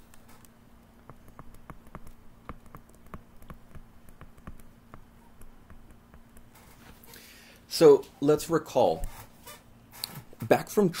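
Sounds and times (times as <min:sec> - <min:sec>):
low steady hum: 0:00.0 - 0:11.0
stylus tapping on tablet screen: 0:01.0 - 0:06.6.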